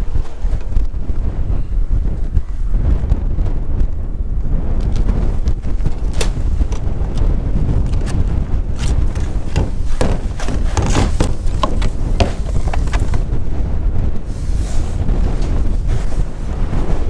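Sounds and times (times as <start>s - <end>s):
wind buffeting microphone: 0.0s - 17.0s
metal pipes knocking and clattering: 9.1s - 13.2s.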